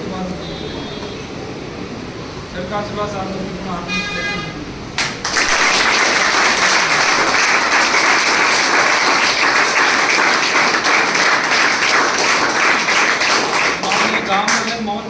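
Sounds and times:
crowd applauding: 5.0s - 14.8s.

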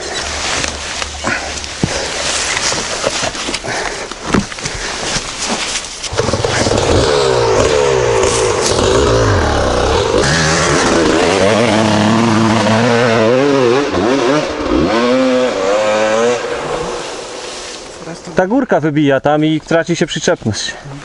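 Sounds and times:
dirt bike engine revving: 6.1s - 18.0s.

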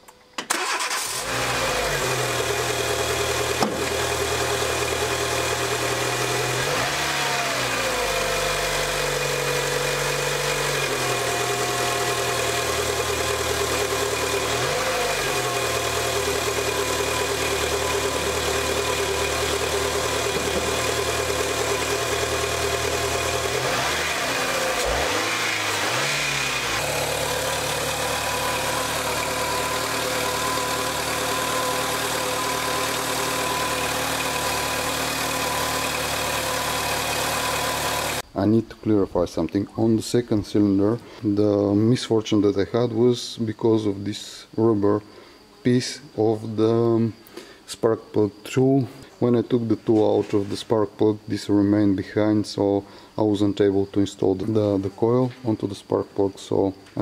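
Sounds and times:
car engine starting and idling: 0.4s - 38.3s.

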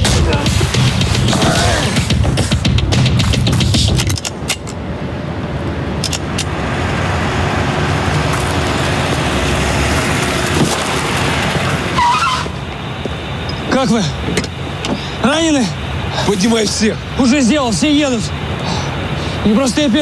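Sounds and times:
car engine and road noise: 0.0s - 20.0s
wavering squeal: 11.9s - 12.7s.

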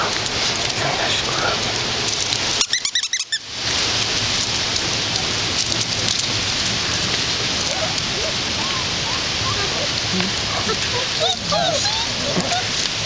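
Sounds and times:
steady hiss: 0.0s - 13.0s
squeaky toy squeaking: 2.6s - 3.4s.

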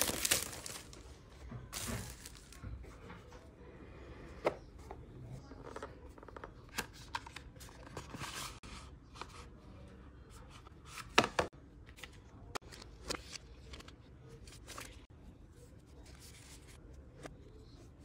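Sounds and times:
cardboard and paper rustling: 0.0s - 3.0s.

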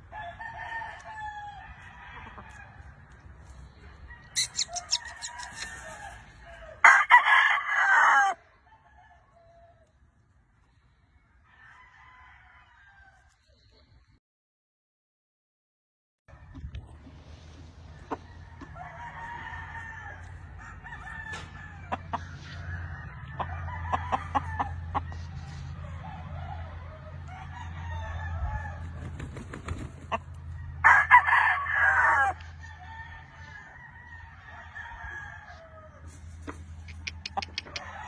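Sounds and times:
rooster crowing: 0.0s - 2.8s, 4.1s - 9.8s, 11.5s - 13.3s, 18.1s - 29.0s, 30.5s - 36.4s
chickens clucking: 2.1s - 6.4s, 36.1s - 38.0s
scattered clicks: 36.8s - 37.9s.

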